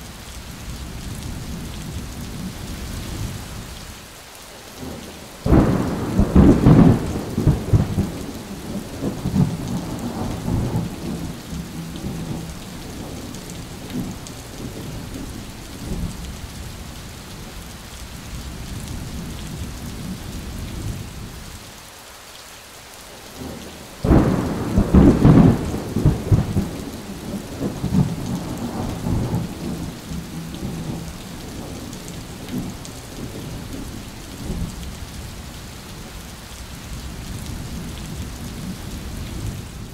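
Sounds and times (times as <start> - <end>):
heavy rain: 0.0 - 39.9
thunder claps rumbling: 4.8 - 16.3, 23.4 - 35.3.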